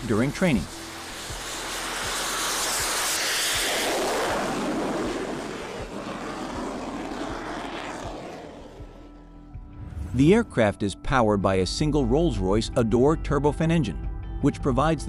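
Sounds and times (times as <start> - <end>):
jet engine roar: 0.0 - 10.6.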